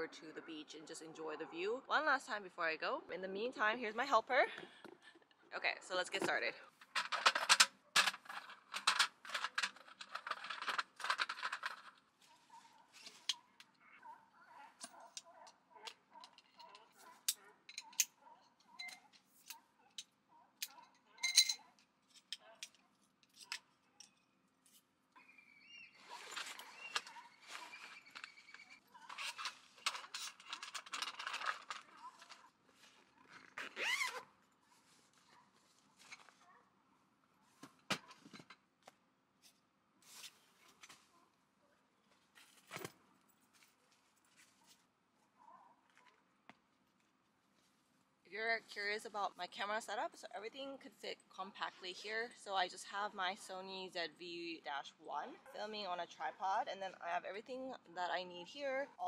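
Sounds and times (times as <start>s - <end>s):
camp table clattering and rattling: 6.8s - 12.2s, 20.7s - 22.6s, 26.0s - 32.5s
zipper being worked: 25.9s - 29.8s, 33.2s - 34.4s.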